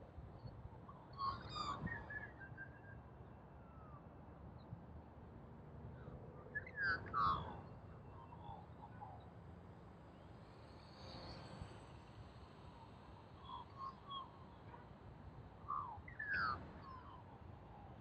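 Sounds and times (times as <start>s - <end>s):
wind rumble on microphone: 0.0s - 3.1s.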